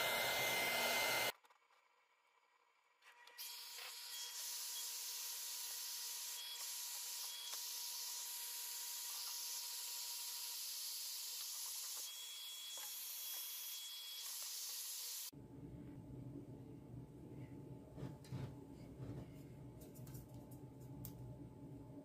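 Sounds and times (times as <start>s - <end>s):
heat gun fan hissing: 0.0s - 1.3s.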